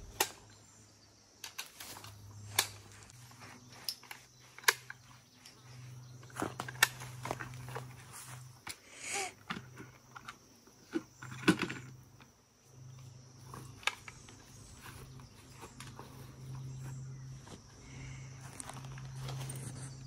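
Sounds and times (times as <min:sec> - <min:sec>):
steady low hum: 0:00.0 - 0:20.0
knocks and clicks of gear handled: 0:01.4 - 0:08.8, 0:09.4 - 0:17.7.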